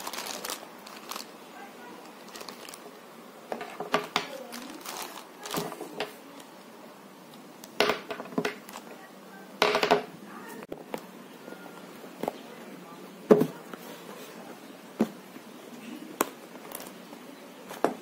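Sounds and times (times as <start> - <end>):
cable rustling and clicks: 0.0 - 1.3, 2.0 - 2.9, 3.6 - 6.5
plastic bag crinkling: 0.0 - 6.5.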